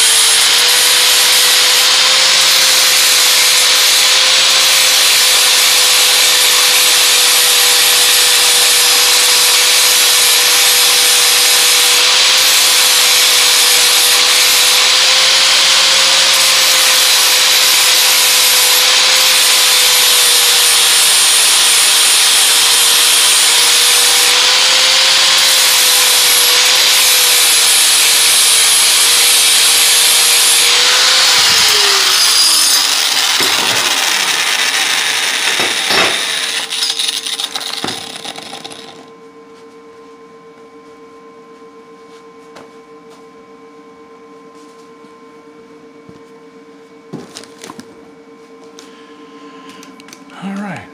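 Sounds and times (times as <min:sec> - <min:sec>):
grinder spinning down: 0:00.0 - 0:39.1
wire wheel grinder scrubbing steel: 0:00.0 - 0:39.1.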